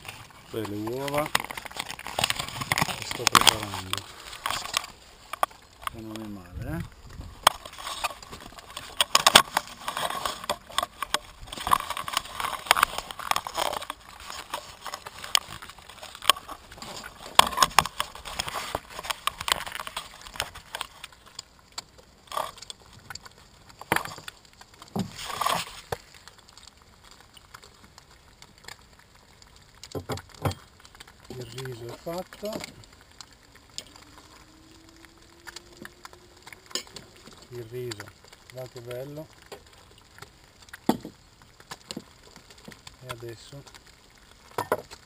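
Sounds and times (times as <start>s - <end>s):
eggs frying and crackling: 0.0s - 45.0s
knocks and clatter on wooden boat: 29.9s - 30.7s, 40.8s - 41.2s, 44.5s - 45.0s.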